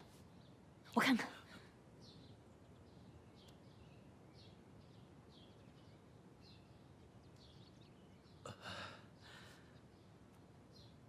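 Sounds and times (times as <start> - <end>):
small birds chirping: 0.0 - 11.0
man gasping in pain: 8.5 - 9.4.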